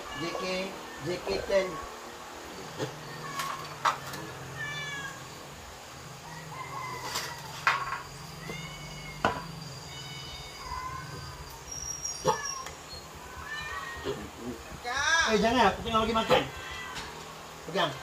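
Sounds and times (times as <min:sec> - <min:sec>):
monkeys squeaky calls: 0:09.8 - 0:14.1.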